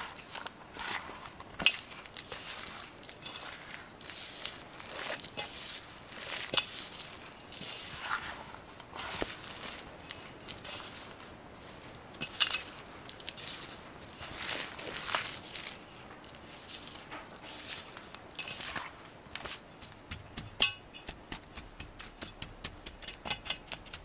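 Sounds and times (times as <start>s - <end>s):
fingers crunching crumbly crust: 13.1s - 24.0s.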